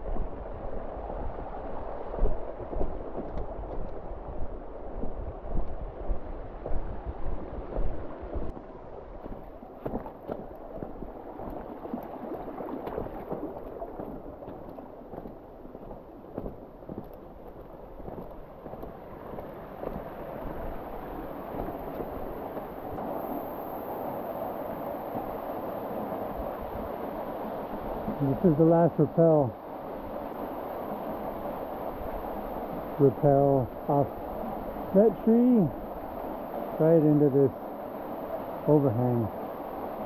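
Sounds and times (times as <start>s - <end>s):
creek water running over rock: 7.8s - 23.1s, 24.6s - 40.0s.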